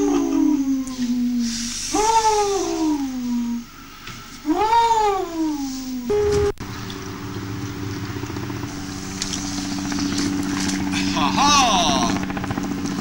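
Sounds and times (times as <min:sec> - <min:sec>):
steady low hum: 0:00.0 - 0:13.0
wolf howling: 0:04.4 - 0:06.5.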